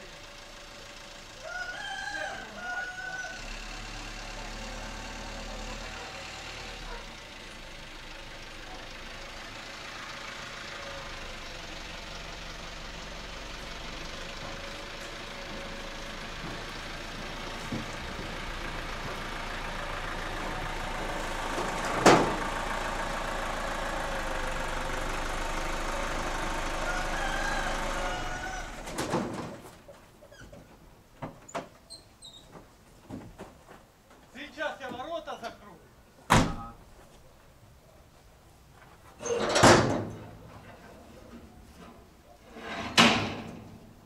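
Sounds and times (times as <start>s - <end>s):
diesel truck engine running: 0.0s - 29.6s.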